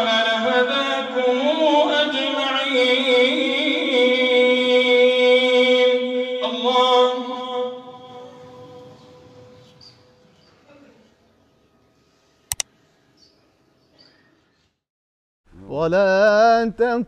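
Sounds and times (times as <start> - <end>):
man chanting melodically: 0.0 - 9.1, 15.6 - 17.0.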